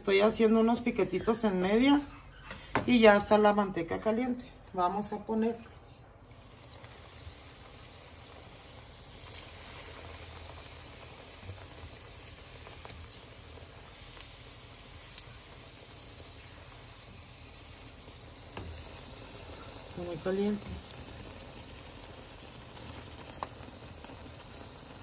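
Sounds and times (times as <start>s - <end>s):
dough frying in oil: 6.2s - 25.0s.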